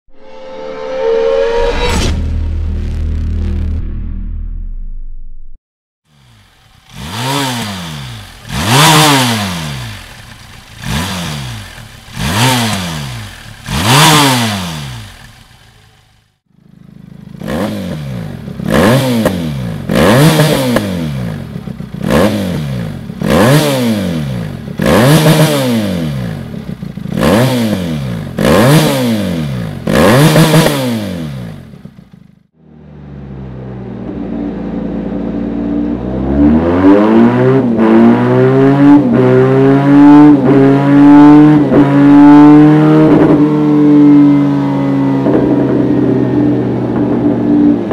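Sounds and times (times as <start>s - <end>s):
motorcycle engine idling: 6.1s - 18.7s, 21.0s - 23.3s, 26.0s - 27.2s, 31.2s - 35.9s
motorcycle engine revving: 6.1s - 47.9s.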